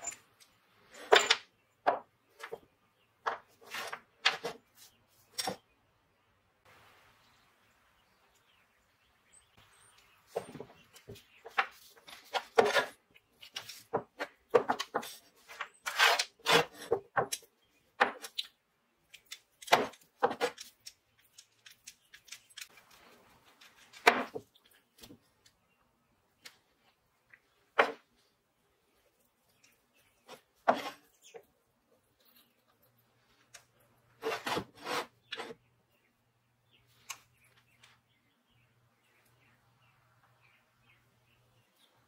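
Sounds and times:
metal parts clinking on wood: 0.0 - 1.5.

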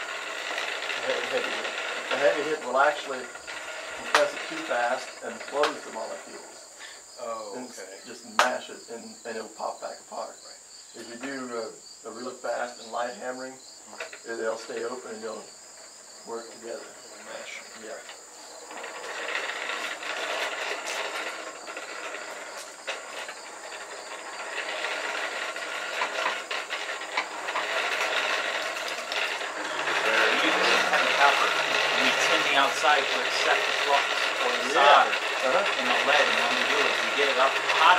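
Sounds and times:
insects chirping: 0.0 - 37.9
forge fire rushing under air blast: 18.9 - 37.9.

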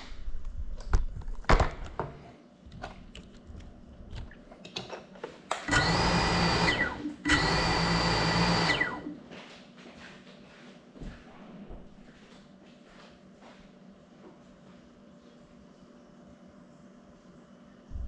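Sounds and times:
drone motors whining: 5.7 - 9.2.

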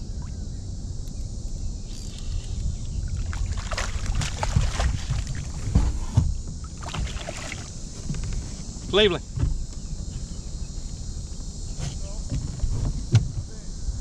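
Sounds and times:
steady low rumble: 0.0 - 14.0
water splashing around a kayak: 2.9 - 9.4.

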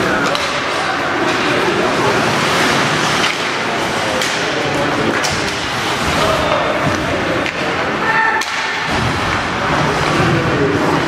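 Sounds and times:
arena noise: 0.0 - 11.0.

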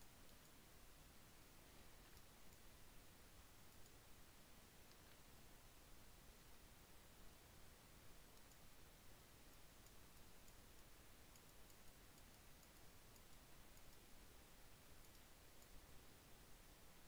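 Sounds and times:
room hiss: 0.0 - 17.0
computer mouse clicks: 0.2 - 0.6, 1.8 - 2.7, 3.6 - 4.0, 4.8 - 5.4, 8.2 - 15.8.

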